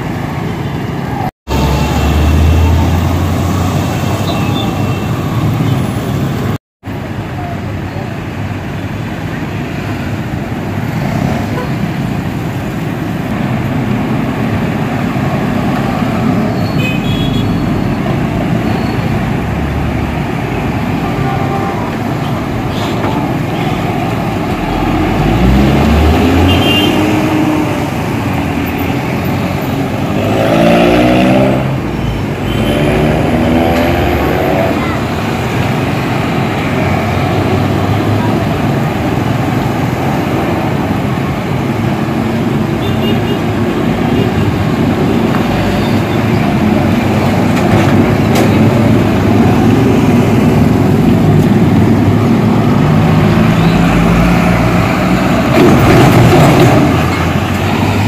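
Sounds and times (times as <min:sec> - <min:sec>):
road traffic passing slowly: 0:00.0 - 0:58.0
engine revving up: 0:24.6 - 0:28.0, 0:30.1 - 0:31.8, 0:32.6 - 0:34.9.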